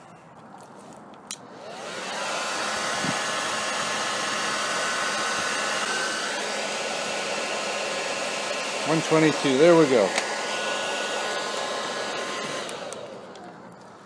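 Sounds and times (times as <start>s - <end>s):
hair dryer blowing with faint whine: 1.4s - 14.0s.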